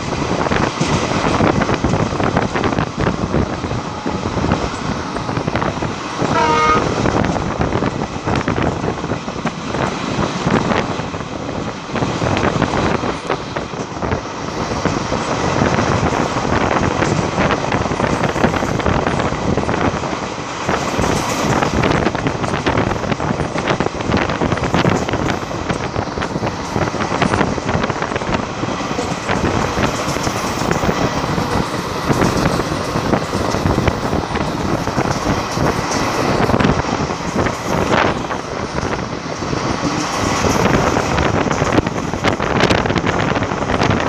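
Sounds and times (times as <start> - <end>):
train wheels clattering on rails: 0.0 - 44.0
wind and running noise: 0.0 - 44.0
locomotive horn toot: 6.3 - 7.1.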